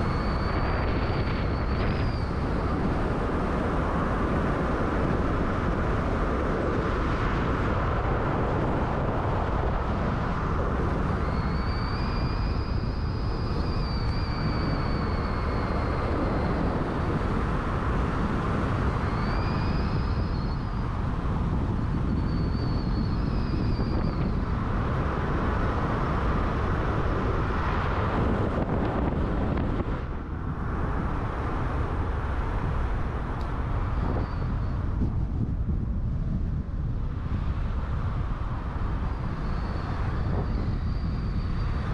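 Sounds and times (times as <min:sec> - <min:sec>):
faint high squeals: 0:00.0 - 0:03.2, 0:10.8 - 0:17.4, 0:18.6 - 0:24.9, 0:33.8 - 0:35.2, 0:38.4 - 0:41.9
car road and engine noise: 0:00.0 - 0:41.9.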